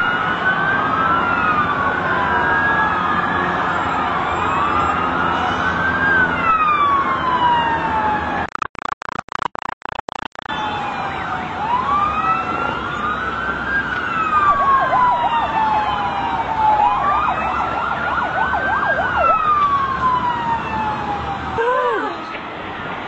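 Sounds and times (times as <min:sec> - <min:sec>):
emergency sirens wailing: 0:00.0 - 0:08.5, 0:10.4 - 0:23.0
siren fast yelping: 0:14.2 - 0:20.6.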